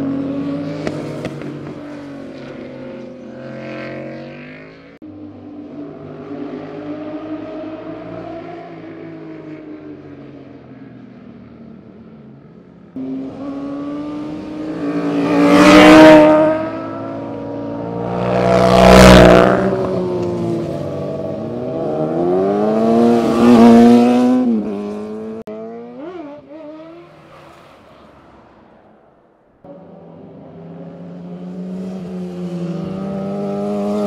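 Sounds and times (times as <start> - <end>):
motorbikes revving past: 0.0 - 5.3, 12.9 - 28.9, 29.7 - 34.0.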